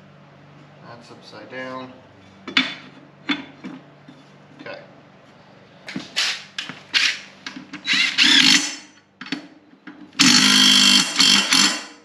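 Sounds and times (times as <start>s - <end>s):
power tool running on bolt: 7.8s - 8.9s, 10.2s - 12.0s.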